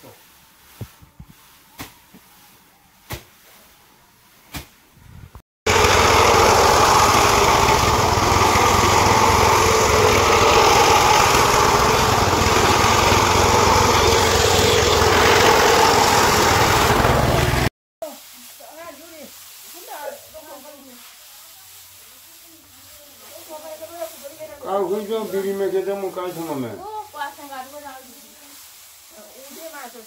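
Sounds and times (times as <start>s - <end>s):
tiller engine running: 5.7s - 17.7s.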